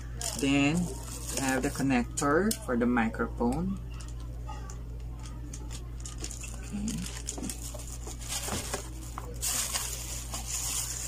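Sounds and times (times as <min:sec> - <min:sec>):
plastic bags crinkling: 0:00.1 - 0:02.1, 0:05.5 - 0:11.0.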